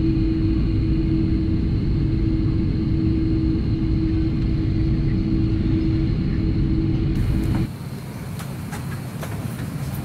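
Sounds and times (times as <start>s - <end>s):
airplane cabin low rumble and hum: 0.0s - 10.0s.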